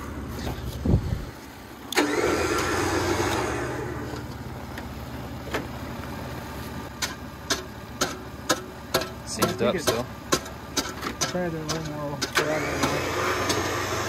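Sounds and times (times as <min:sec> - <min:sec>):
truck engine idling: 0:00.0 - 0:14.0
electric winch running: 0:01.8 - 0:04.5, 0:12.3 - 0:14.0.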